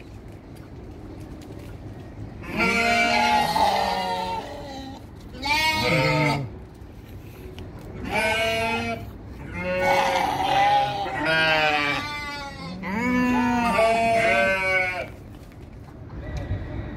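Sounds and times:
sheep and goats bleating: 0:02.4 - 0:06.5, 0:08.0 - 0:15.2.

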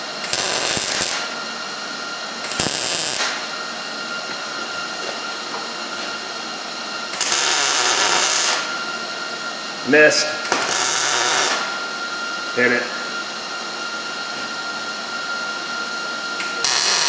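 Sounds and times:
welder arc crackling: 0:00.2 - 0:01.3, 0:02.5 - 0:03.3, 0:07.2 - 0:08.6, 0:10.5 - 0:11.6, 0:16.5 - 0:17.0.

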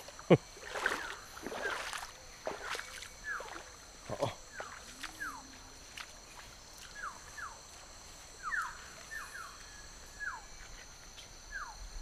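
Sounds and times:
steady high-pitched drone: 0:00.0 - 0:12.0
forest birds whistling: 0:00.8 - 0:01.9, 0:02.7 - 0:03.8, 0:04.4 - 0:05.6, 0:06.9 - 0:07.6, 0:08.4 - 0:10.6, 0:11.5 - 0:11.9.

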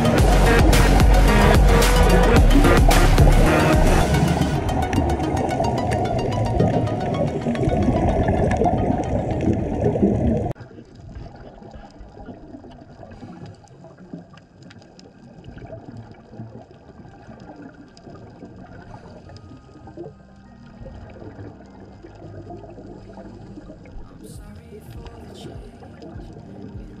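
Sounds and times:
regulator bubbles underwater: 0:00.0 - 0:27.0
small clicks underwater: 0:10.6 - 0:27.0.

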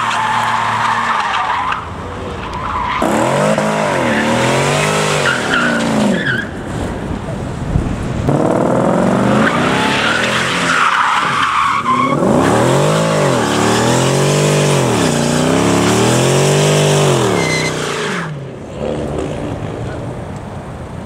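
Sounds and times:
tyres squealing on tarmac: 0:00.0 - 0:06.7, 0:09.3 - 0:18.4
car engine revving: 0:02.8 - 0:06.2, 0:08.2 - 0:10.9, 0:12.0 - 0:20.0.

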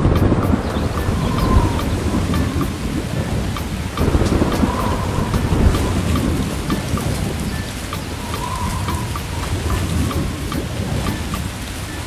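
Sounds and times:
rolling thunder rumbling: 0:00.0 - 0:12.0
steady rain: 0:00.0 - 0:12.0.

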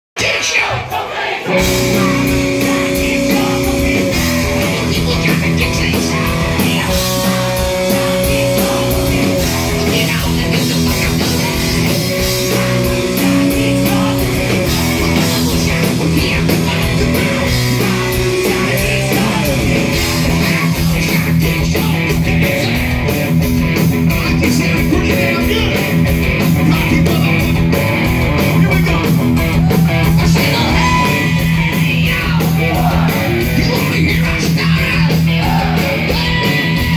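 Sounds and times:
drums: 0:00.2 - 0:36.9
electric guitars: 0:01.4 - 0:36.9.

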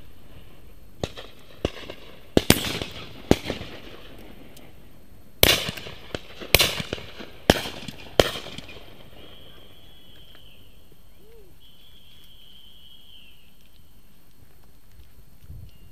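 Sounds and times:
shotgun shots echoing: 0:01.0 - 0:04.8, 0:05.4 - 0:10.1
faint high whistling tone: 0:08.7 - 0:14.2, 0:15.5 - 0:15.9.

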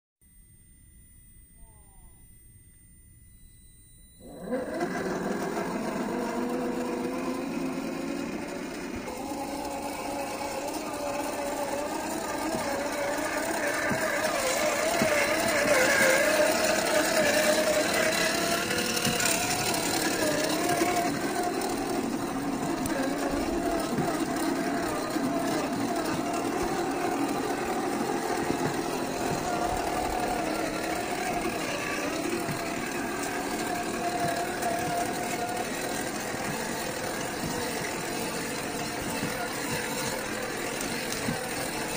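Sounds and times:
toy car electric motor whining: 0:03.1 - 0:41.9.

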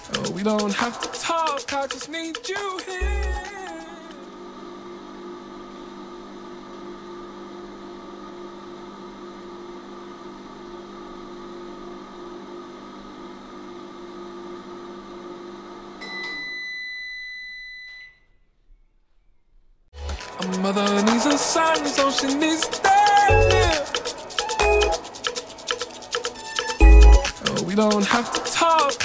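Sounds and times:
electronic humming drone: 0:03.0 - 0:04.3, 0:20.6 - 0:27.4
high steady beep: 0:23.3 - 0:23.7.

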